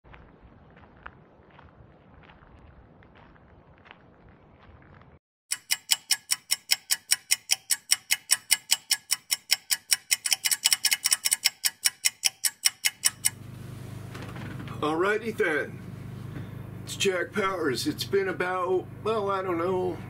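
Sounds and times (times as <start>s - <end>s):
clock ticking: 5.5s - 13.4s.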